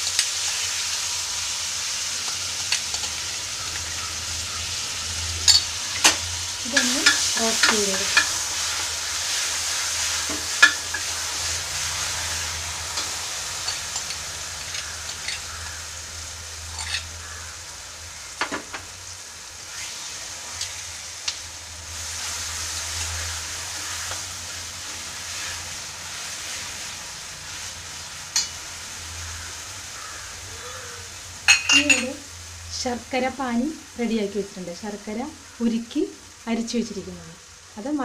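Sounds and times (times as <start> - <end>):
paste sizzling in a pan: 0.0 - 38.0
spoon scraping a pan: 5.4 - 9.4, 10.0 - 11.2, 12.9 - 15.8, 16.7 - 17.4.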